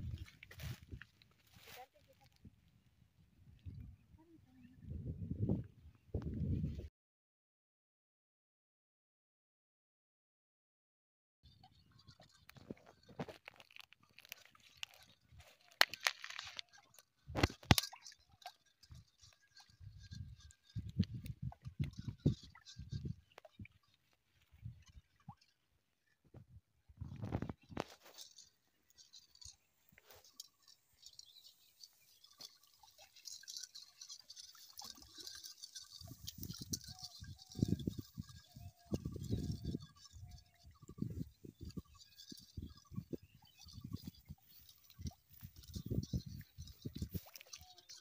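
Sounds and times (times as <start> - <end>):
fish thrashing and splashing: 11.6 - 25.6, 27.1 - 48.0
faint high-pitched chirping: 27.2 - 48.0.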